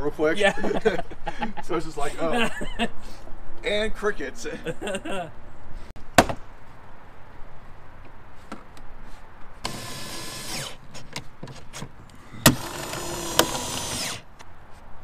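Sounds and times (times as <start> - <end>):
cordless screwdriver driving screws: 9.6 - 10.8, 12.5 - 14.3
sharp clicks: 12.1 - 14.5.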